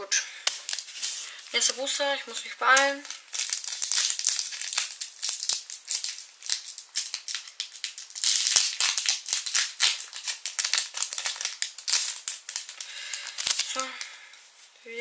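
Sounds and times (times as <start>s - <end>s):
foil wrapper tearing and crinkling: 0.5s - 2.0s, 2.6s - 14.1s.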